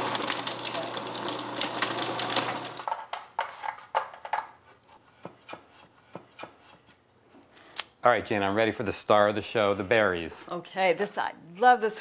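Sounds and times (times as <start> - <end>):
food processor running: 0.0 - 2.9.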